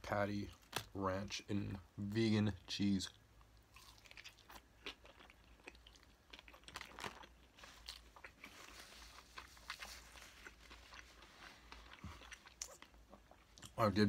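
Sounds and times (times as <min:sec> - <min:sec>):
chewing mouth sounds: 0:03.5 - 0:13.8.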